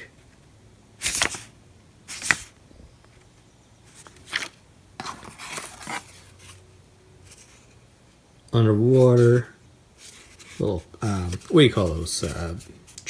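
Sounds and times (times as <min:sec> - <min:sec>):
rustling of items in gift box: 0:03.9 - 0:07.8.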